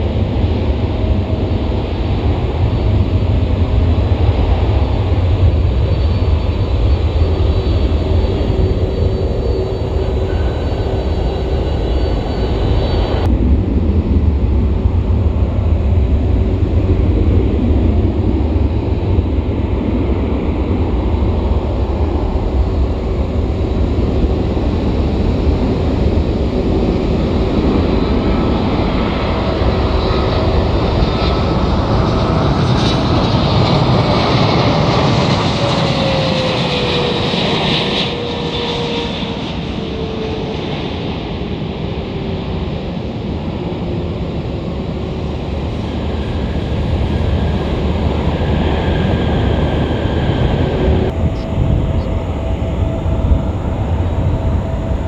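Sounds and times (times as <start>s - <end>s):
airliner engines rumbling: 0.0s - 55.0s
thin whining tones: 5.7s - 13.3s.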